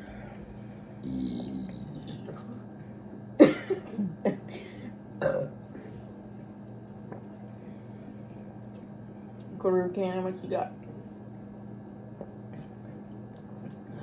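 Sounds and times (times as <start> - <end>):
person burping: 1.0 - 2.6, 5.2 - 5.6.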